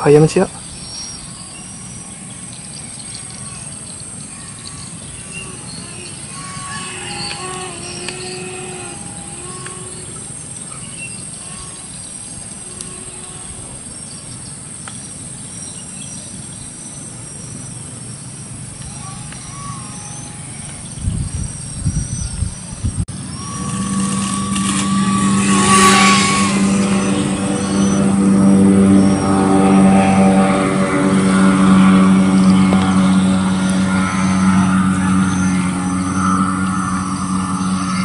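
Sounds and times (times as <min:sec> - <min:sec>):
faint pitched calls: 0:00.0 - 0:14.4, 0:18.4 - 0:30.0
high-pitched insect drone: 0:00.0 - 0:16.2, 0:16.8 - 0:38.0.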